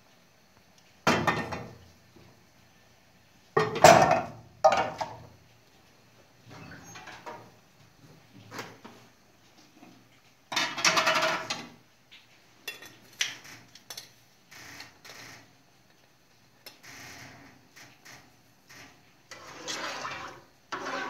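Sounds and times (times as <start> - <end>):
spoon scraping through granules: 19.3 - 21.0.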